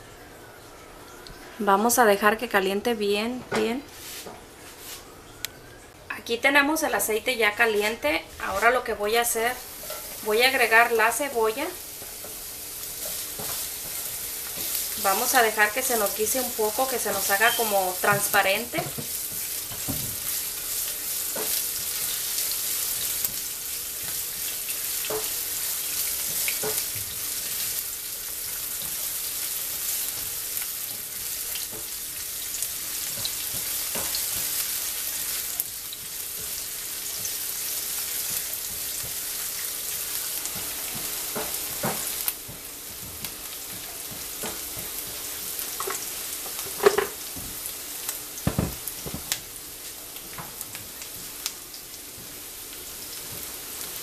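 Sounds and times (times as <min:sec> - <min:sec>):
onion sizzling in hot oil: 0:06.7 - 0:54.0
spatula scraping and knocking pan: 0:09.8 - 0:10.2, 0:12.0 - 0:15.3, 0:15.9 - 0:20.4.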